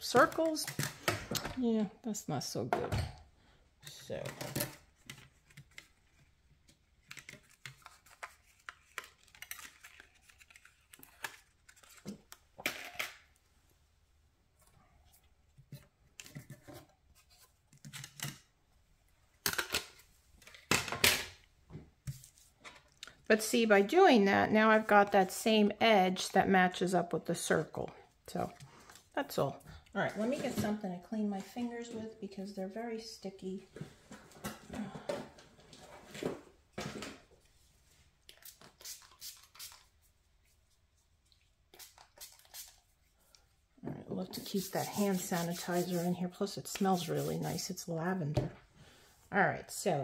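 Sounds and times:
paper rustling: 7.0 - 12.4, 44.4 - 46.1.

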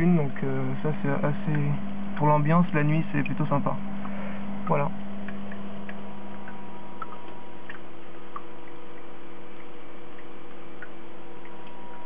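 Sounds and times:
steady machine hum: 0.0 - 12.0
water dripping and plopping: 5.0 - 12.0.

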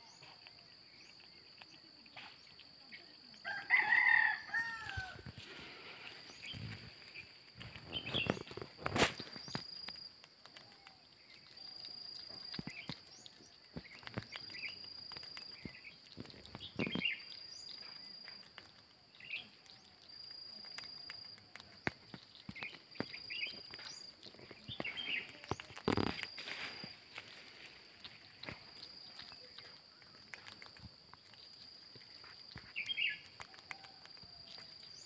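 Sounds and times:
bird chirps: 5.7 - 8.6, 10.7 - 27.0, 31.2 - 35.0.

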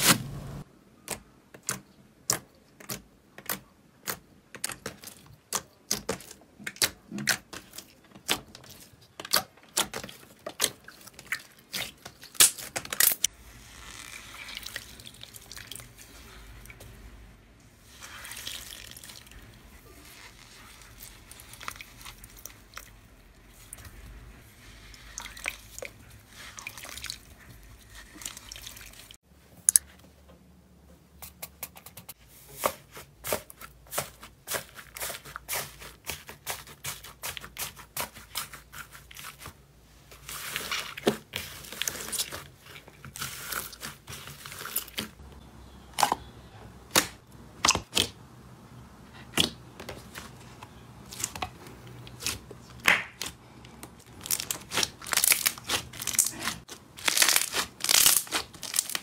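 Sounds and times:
squeezing slime: 2.8 - 16.8, 17.8 - 29.2, 32.6 - 45.2, 54.0 - 59.0
hands crushing floral foam: 49.2 - 59.0.

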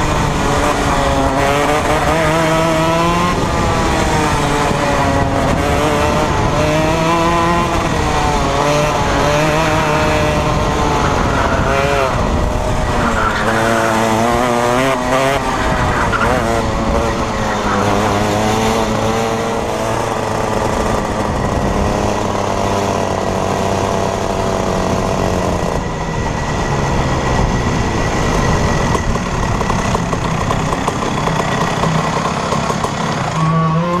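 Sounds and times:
wind noise: 0.0 - 33.2
kart engine running: 0.0 - 34.0.

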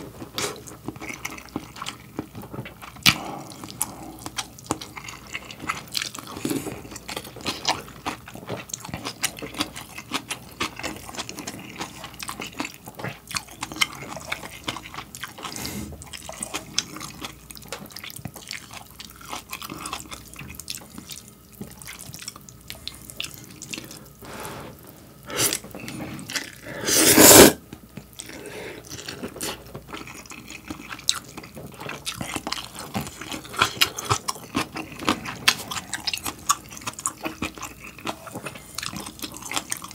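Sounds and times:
wet crunching chewing: 0.2 - 24.2, 27.9 - 39.9
noodle slurps: 24.2 - 27.6.

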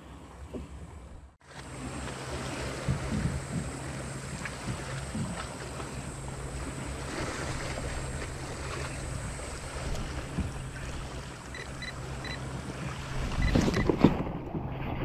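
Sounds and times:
steady low hum: 0.0 - 13.8
small waves lapping: 1.4 - 15.0
wind buffeting microphone: 2.0 - 11.4
short high electronic beeps: 11.5 - 12.4.

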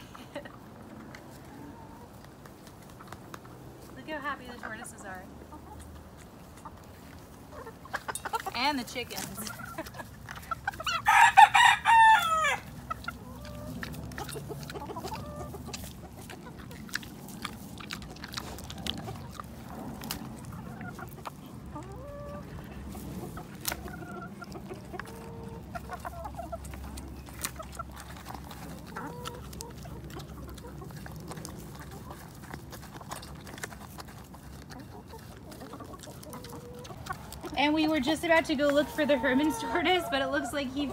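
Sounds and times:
animals pecking at food dish: 0.0 - 40.9
chickens clucking: 0.0 - 40.9
rooster crowing: 10.9 - 12.7.

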